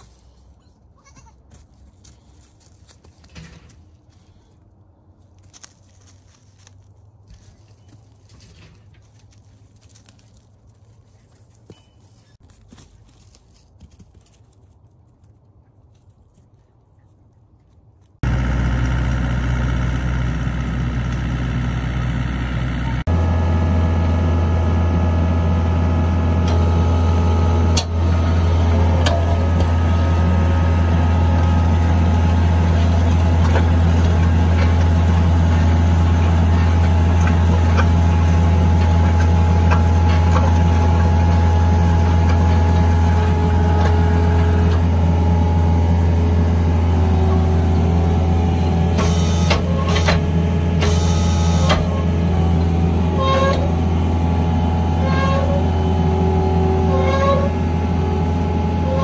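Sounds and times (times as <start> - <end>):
hydraulic whine: 18.2 - 59.0
loader engine running: 18.2 - 59.0
auger scraping soil: 27.8 - 45.7, 46.3 - 53.8.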